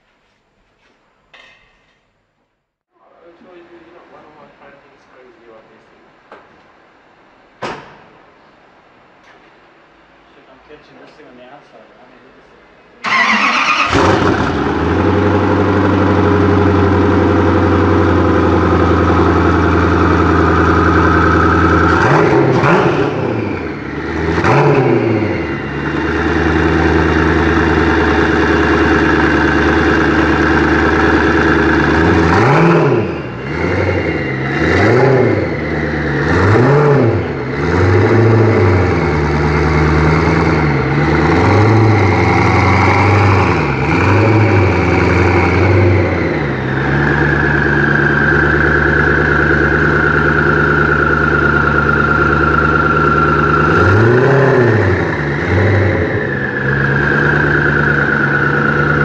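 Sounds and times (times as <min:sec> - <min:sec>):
car engine idling and revving: 0:13.1 - 0:59.0.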